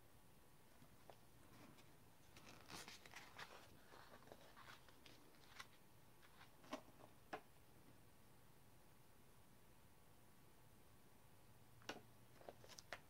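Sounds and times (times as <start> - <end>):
paper page turning: 1.8 - 6.8.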